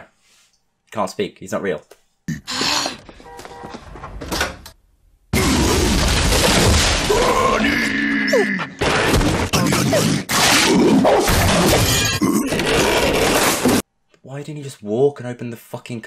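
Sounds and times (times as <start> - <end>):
household objects knocked over: 5.4 - 7.6, 10.4 - 13.8
wooden furniture being smashed: 5.4 - 7.6, 8.8 - 9.8, 11.2 - 13.8.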